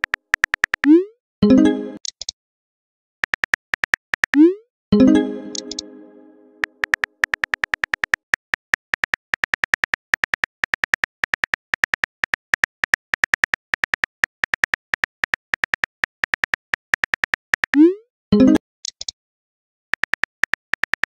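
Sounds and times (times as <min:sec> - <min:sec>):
keyboard tap clicks: 0:00.0 - 0:00.9, 0:05.5 - 0:05.8, 0:06.6 - 0:17.8.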